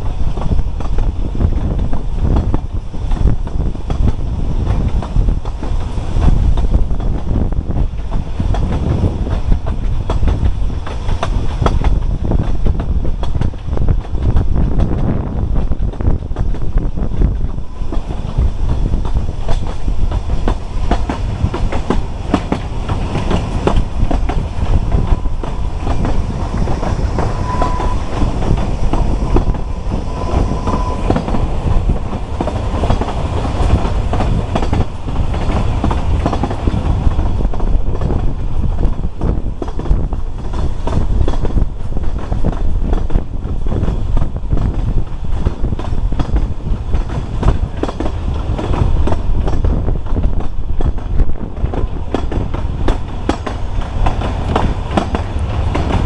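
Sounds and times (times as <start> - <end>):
train carriage rumble: 0.0 - 56.0
wheels clacking over rail joints: 15.6 - 56.0
short high tones: 27.1 - 31.6.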